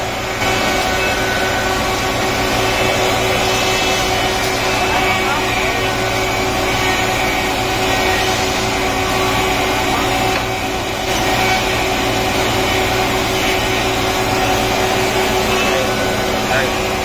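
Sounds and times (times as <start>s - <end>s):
woodworking machinery drone: 0.0s - 17.0s.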